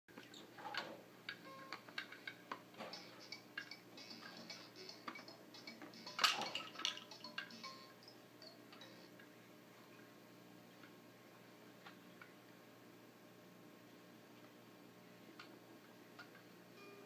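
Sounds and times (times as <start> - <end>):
plastic toys clicking and rattling: 0.7 - 7.8.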